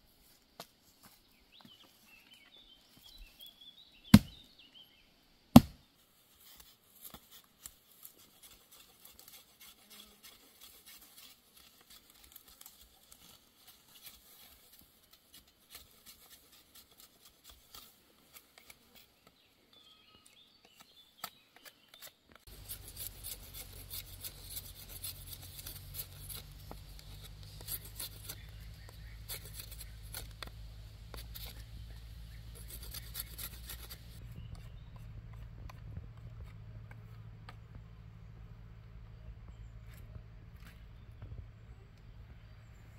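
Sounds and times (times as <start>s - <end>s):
axe chop into wood: 4.1s - 4.4s, 5.6s - 5.8s
hatchet scraping wood: 4.1s - 4.4s, 5.6s - 5.8s, 6.4s - 19.2s, 20.6s - 37.7s.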